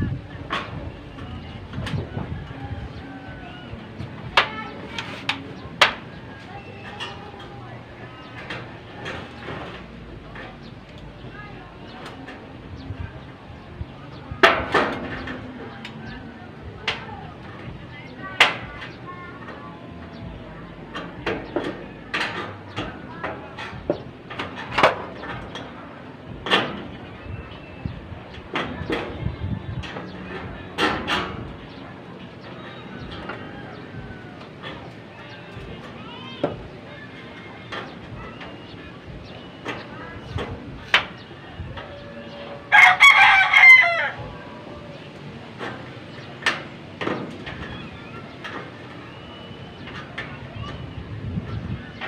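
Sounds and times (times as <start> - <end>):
faint voices: 0.0 - 52.0
rooster crowing: 42.7 - 44.5.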